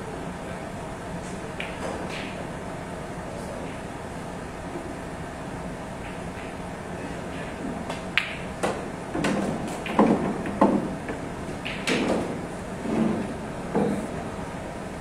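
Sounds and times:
cue tip hitting cue ball: 0:07.3 - 0:14.1
pool balls clicking together: 0:07.8 - 0:12.4.

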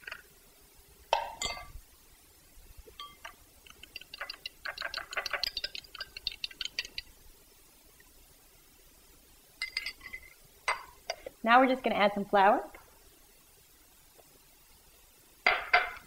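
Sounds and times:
fork clinking on glass bowl: 0:01.4 - 0:01.7, 0:03.0 - 0:07.1.

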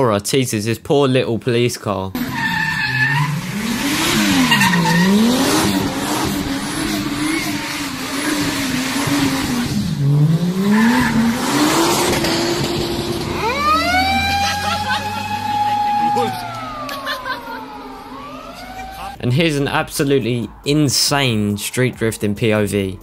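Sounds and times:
tyres squealing: 0:02.2 - 0:06.1, 0:13.1 - 0:19.2
car engine revving: 0:02.2 - 0:21.5.

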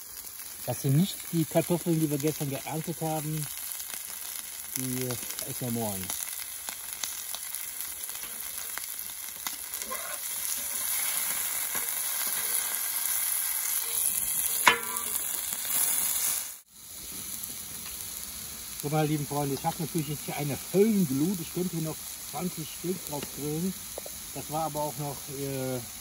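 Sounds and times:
meat and potatoes sizzling: 0:00.0 - 0:26.0
metal spatula scraping: 0:09.7 - 0:12.8, 0:13.7 - 0:15.4
sharp metallic clank: 0:14.6 - 0:15.3.

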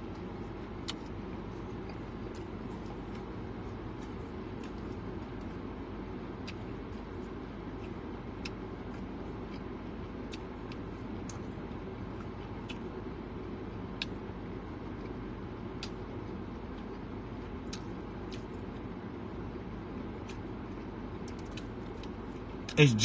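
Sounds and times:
person chewing: 0:00.8 - 0:05.0, 0:06.4 - 0:06.8.

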